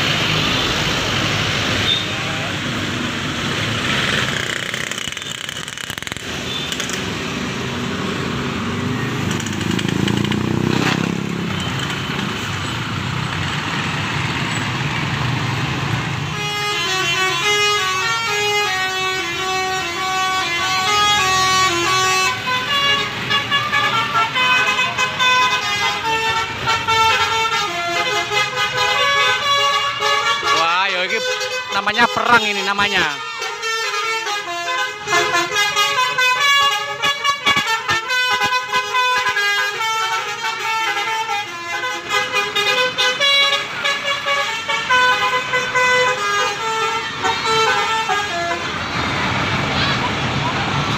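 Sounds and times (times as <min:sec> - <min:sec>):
bus engine rumbling past: 0:06.3 - 0:17.3, 0:45.3 - 0:50.9
musical bus horn playing tune: 0:16.3 - 0:48.8.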